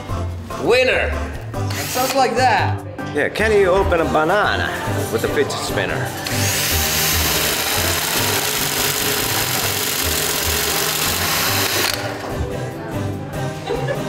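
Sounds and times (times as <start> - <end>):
cordless drill whirring: 1.7 - 2.2, 6.2 - 12.2.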